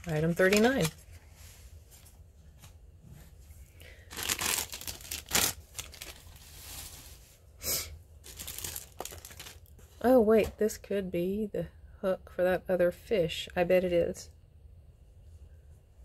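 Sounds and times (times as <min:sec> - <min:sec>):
plastic bag crinkling: 0:00.0 - 0:01.1, 0:03.9 - 0:07.2, 0:08.2 - 0:09.8.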